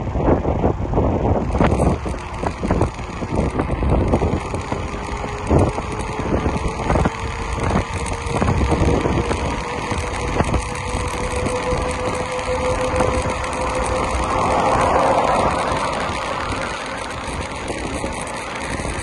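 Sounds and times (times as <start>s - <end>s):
bike tyres rumbling on trail: 0.0s - 19.0s
wind buffeting microphone: 0.0s - 19.0s
faint rising hum: 10.0s - 18.6s.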